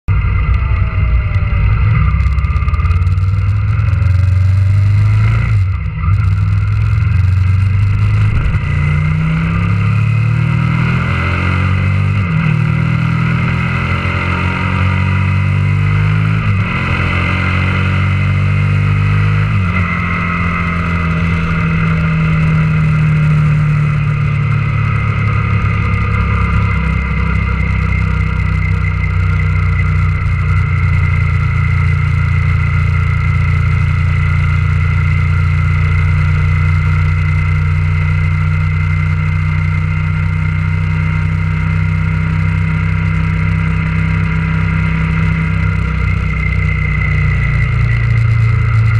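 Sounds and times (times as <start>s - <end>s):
motorcycle engine accelerating: 0.1s - 48.9s.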